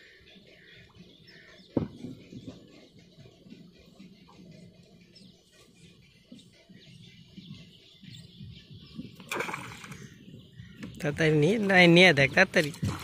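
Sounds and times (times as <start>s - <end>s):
faint bird chirps: 0.0s - 12.0s
short splash in water: 9.3s - 10.0s.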